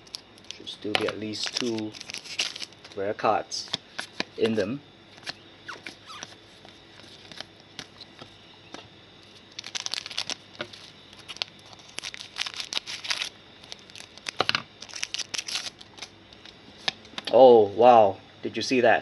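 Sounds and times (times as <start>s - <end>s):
foil wrapper crinkling and tearing: 0.0s - 3.0s, 9.2s - 16.1s
cards tapping: 0.9s - 1.9s.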